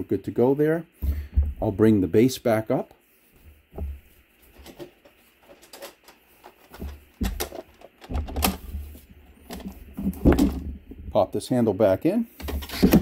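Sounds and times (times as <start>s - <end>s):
heavy thumps of dumbbell settling: 1.0s - 1.8s.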